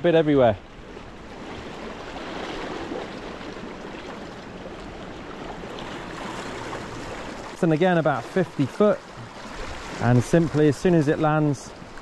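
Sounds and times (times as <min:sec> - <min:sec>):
sea water sloshing around rocks: 0:00.8 - 0:12.0.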